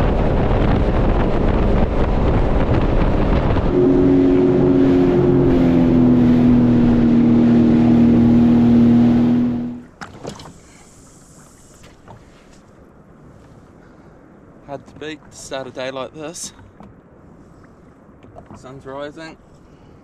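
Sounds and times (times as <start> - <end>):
jet ski engine drone: 0.0 - 9.9.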